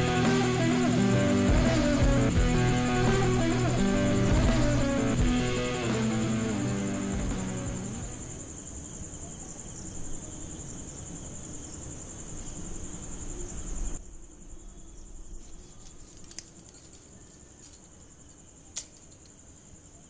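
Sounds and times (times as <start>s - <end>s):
crickets trilling: 0.0s - 20.0s.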